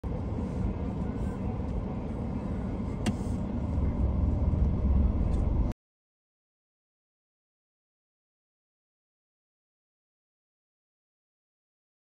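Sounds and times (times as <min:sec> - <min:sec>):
motor vehicles idling rumble: 0:00.0 - 0:05.8.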